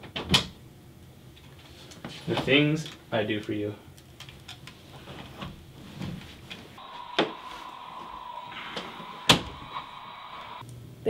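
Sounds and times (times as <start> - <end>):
steady tone: 6.8 - 10.6
walkie-talkie static hiss: 6.8 - 10.6.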